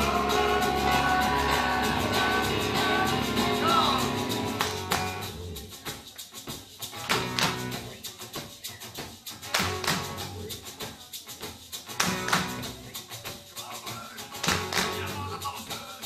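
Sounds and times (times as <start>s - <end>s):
acoustic band holding chords: 0.0s - 5.5s
hand claps: 0.0s - 6.3s, 7.0s - 8.5s, 9.4s - 16.0s
light percussion: 0.0s - 16.0s.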